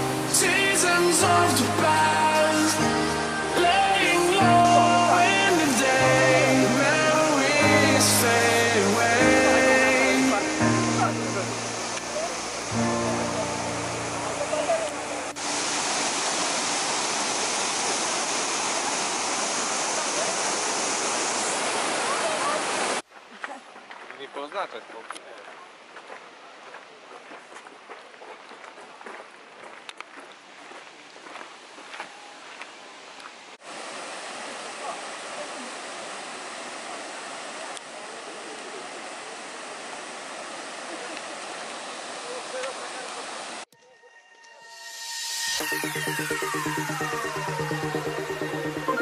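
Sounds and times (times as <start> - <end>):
waterfall rushing over rocks: 0.0 - 23.0, 32.7 - 43.7.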